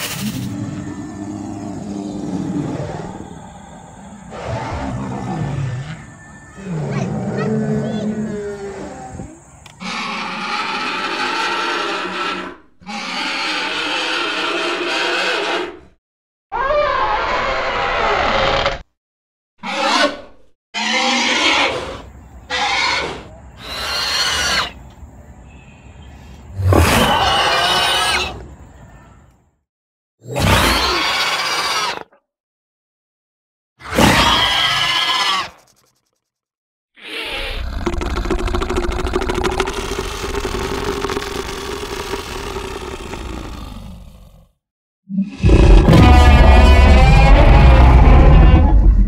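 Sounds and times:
dinosaur roars and screeches: 0.0 - 15.9, 16.5 - 18.9, 19.6 - 24.8, 26.5 - 28.7, 30.2 - 32.2, 33.8 - 35.8, 37.0 - 49.0
low rumbling growl: 0.2 - 9.5, 45.4 - 49.0.

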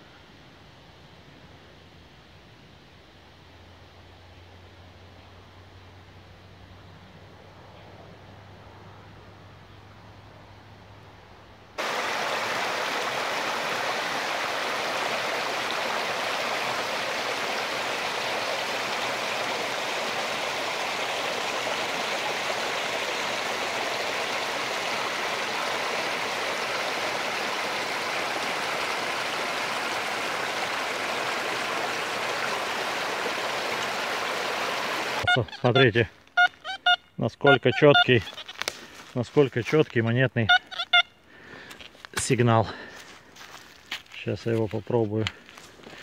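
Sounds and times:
water cascading over rocks: 11.8 - 35.4.

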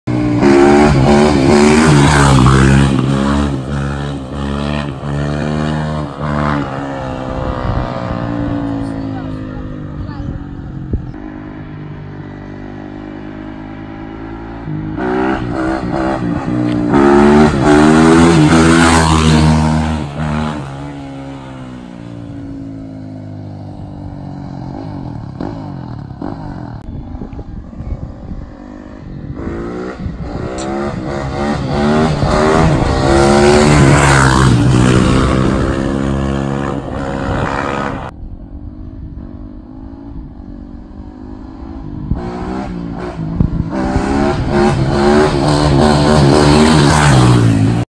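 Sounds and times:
motocross bike engine revving: 0.1 - 9.8, 14.0 - 21.9, 28.4 - 38.1, 41.1 - 47.9.

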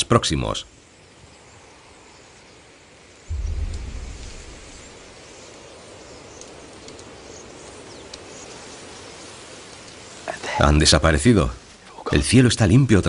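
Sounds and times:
steady hiss: 0.0 - 13.0
low rush: 3.3 - 5.6.

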